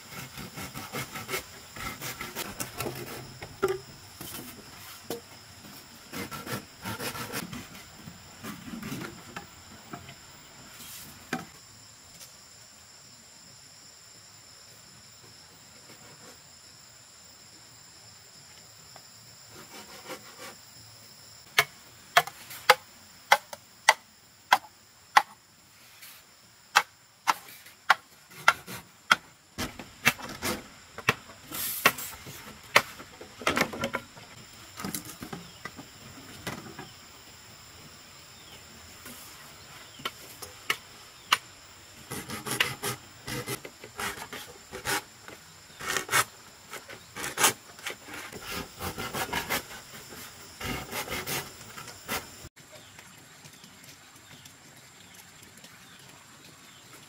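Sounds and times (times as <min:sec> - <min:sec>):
knocks and scraping: 0:00.0 - 0:11.6, 0:26.0 - 0:37.0, 0:42.0 - 0:52.5
insects trilling: 0:00.0 - 0:53.7, 0:55.8 - 0:57.0
machete chopping bamboo: 0:21.5 - 0:25.4.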